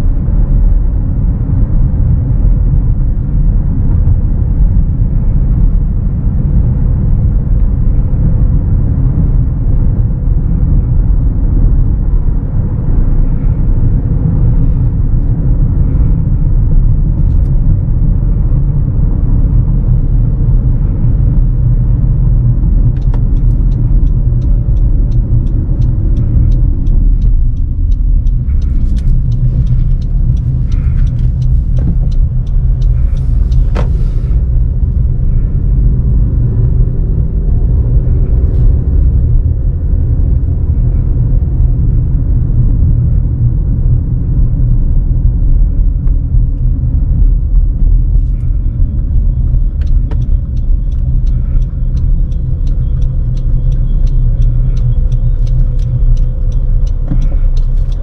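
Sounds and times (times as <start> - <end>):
road and tyre rumble: 0.0 - 58.0
turn signal ticking: 6.8 - 58.0.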